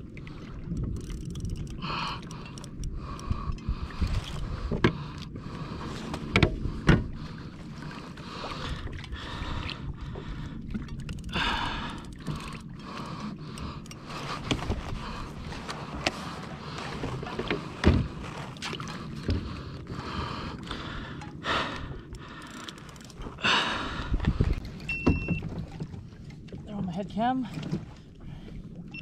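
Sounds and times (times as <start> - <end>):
water sloshing around kayak: 0.0 - 29.0
wind on microphone: 2.8 - 5.0, 23.9 - 25.4
breathy rushes: 11.2 - 17.0, 18.9 - 24.5.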